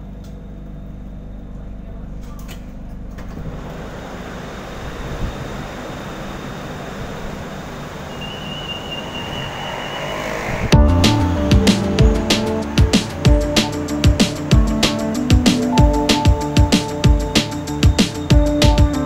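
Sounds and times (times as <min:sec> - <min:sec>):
train rushing hum: 0:03.4 - 0:19.0
high electronic beep: 0:08.1 - 0:13.4.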